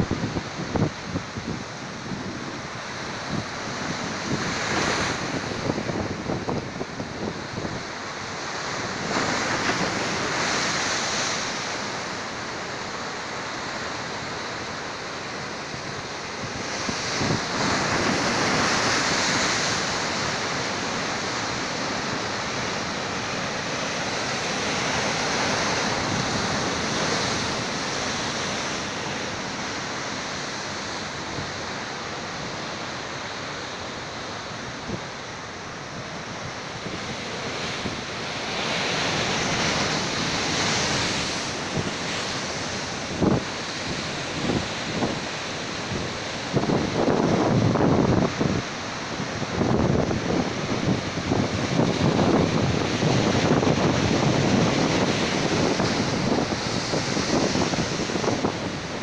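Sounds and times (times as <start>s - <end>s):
sea surf breaking against rocks: 0.0s - 59.0s.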